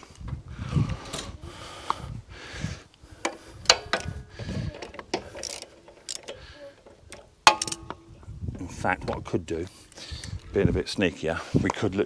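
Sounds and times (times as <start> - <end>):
sharp metallic clicks and knocks: 3.2 - 4.2, 4.8 - 8.2.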